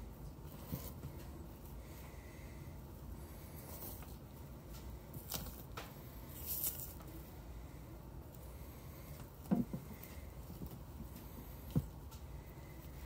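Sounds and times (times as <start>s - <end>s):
skin tearing and rustling: 5.2s - 7.1s.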